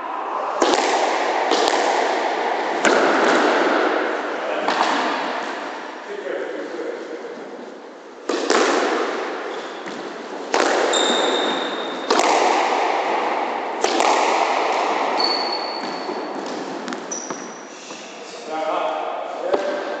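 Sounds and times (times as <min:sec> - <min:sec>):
squash ball hits echoing: 0:00.0 - 0:06.0, 0:08.2 - 0:17.7
shoes squeaking on wooden floor: 0:10.9 - 0:11.9, 0:17.1 - 0:17.8.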